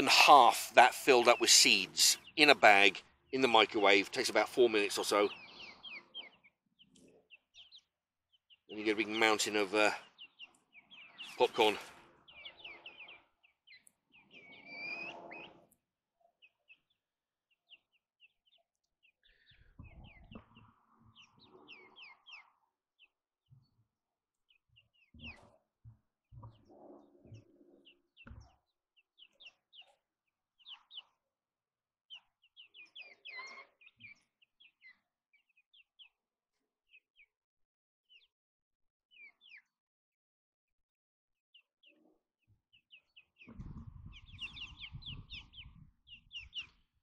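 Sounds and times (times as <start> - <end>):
chicks chirping: 0.0 - 15.7, 17.6 - 23.6, 24.4 - 25.6, 26.3 - 30.0, 30.6 - 31.2, 32.1 - 36.2, 38.1 - 38.3, 39.1 - 39.7, 41.8 - 47.0.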